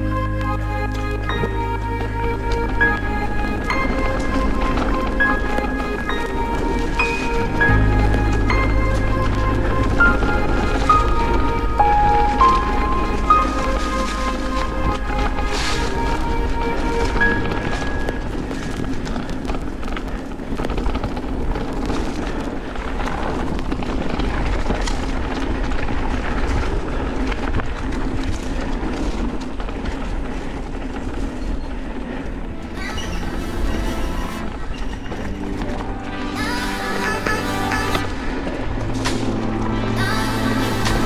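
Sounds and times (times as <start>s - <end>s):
background music with rising glides: 0.0s - 19.6s, 32.5s - 41.0s
bike rattling and clicking: 0.0s - 32.8s
bike tyres on dirt: 0.0s - 41.0s
wind rumble on microphone: 0.0s - 41.0s.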